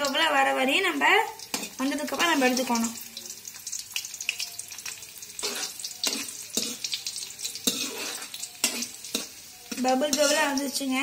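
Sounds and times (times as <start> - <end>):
raisins sizzling in hot fat: 0.0 - 11.0
spoon scraping metal pan: 1.5 - 2.8, 5.4 - 11.0.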